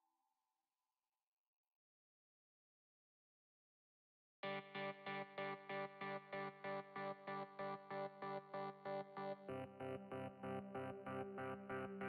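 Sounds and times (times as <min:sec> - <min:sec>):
pulsing synthesizer chord: 0:08.1 - 0:12.0.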